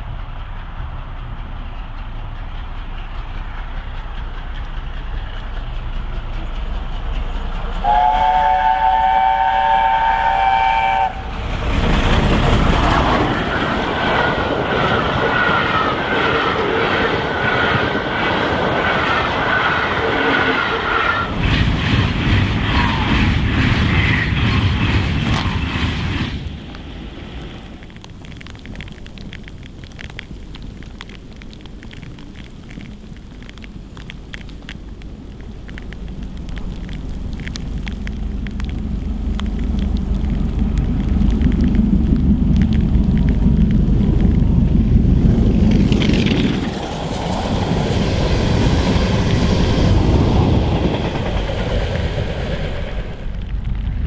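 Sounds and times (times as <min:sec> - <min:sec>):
locomotive exhaust: 0:00.0 - 0:16.0
steam locomotive chime whistle: 0:07.8 - 0:11.2.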